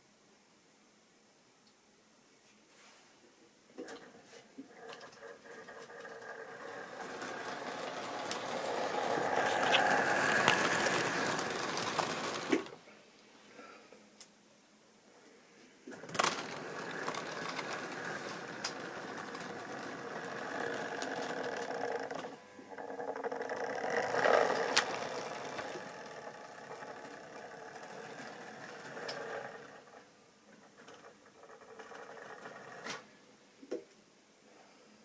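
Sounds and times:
model train wheels rattling on track: 3.8s - 12.8s, 15.9s - 33.0s
small electric motor humming: 5.4s - 12.7s, 16.0s - 30.0s.

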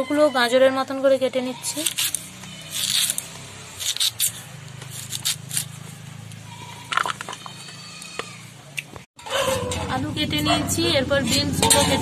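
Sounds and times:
blade cutting potato: 1.6s - 5.8s.

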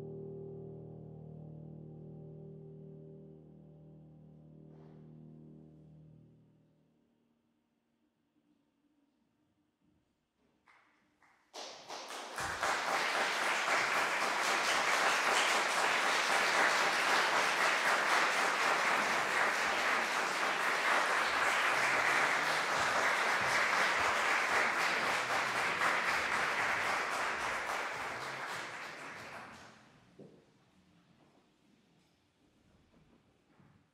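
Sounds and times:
audience applauding: 11.5s - 29.8s.

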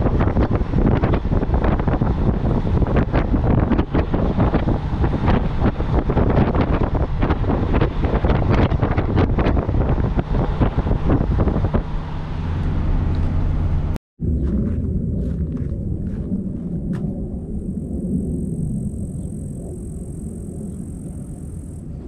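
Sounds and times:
vehicle engine and road hum: 0.0s - 22.0s
wind buffeting microphone: 0.0s - 22.0s.

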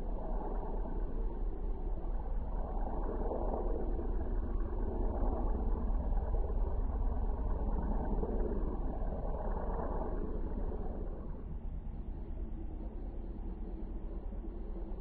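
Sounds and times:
biplane engine and propeller droning: 0.0s - 15.0s.

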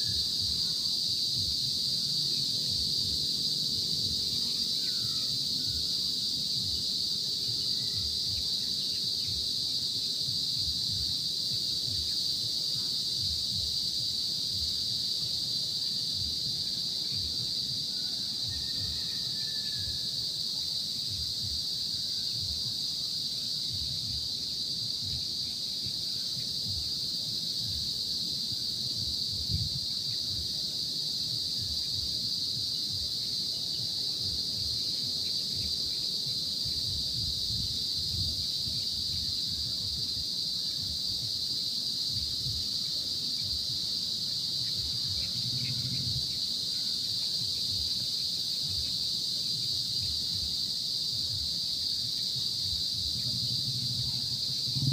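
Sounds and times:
insects droning: 0.0s - 54.9s
wind rumble on microphone: 29.4s - 29.8s, 53.8s - 54.9s.

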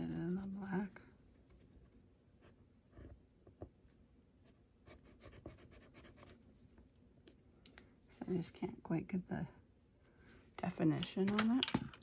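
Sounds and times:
pencil scratching on paper: 4.8s - 6.4s.

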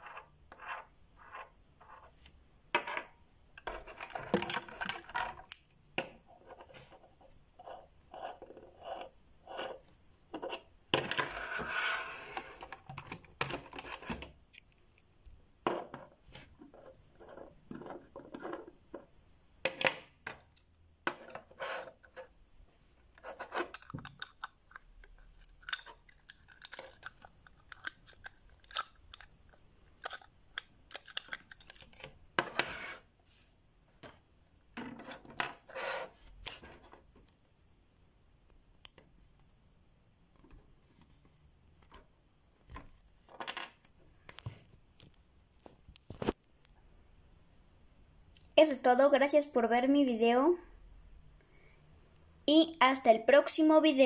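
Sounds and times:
plastic toy pieces clicking: 23.7s - 32.0s.

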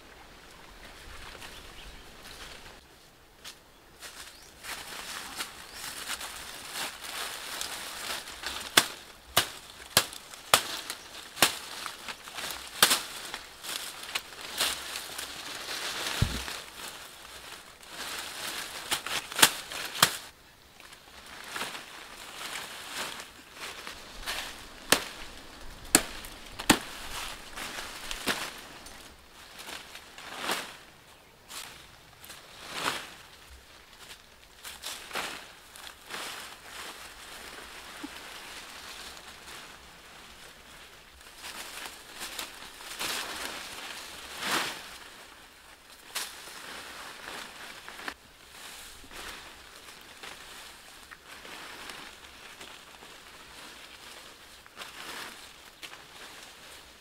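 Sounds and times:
undergrowth and twigs rustling: 0.0s - 57.0s
branches swishing: 4.0s - 20.3s, 21.2s - 30.8s
twigs snapping: 7.1s - 15.2s, 22.5s - 29.8s.

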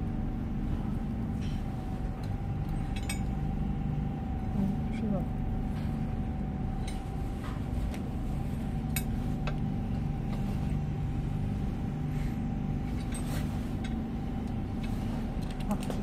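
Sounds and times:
steady low hum: 0.0s - 16.0s
metallic clinks: 2.7s - 3.4s.

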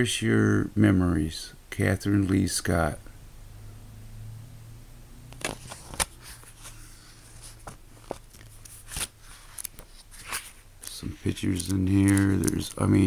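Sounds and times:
book pages turning: 5.4s - 13.0s.

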